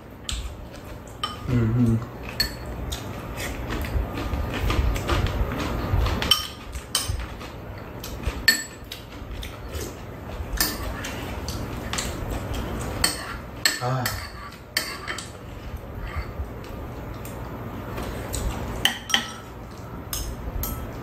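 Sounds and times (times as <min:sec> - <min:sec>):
utensils clinking on ceramic bowls: 0:01.1 - 0:03.0, 0:06.2 - 0:09.1, 0:10.6 - 0:15.4, 0:18.8 - 0:20.9.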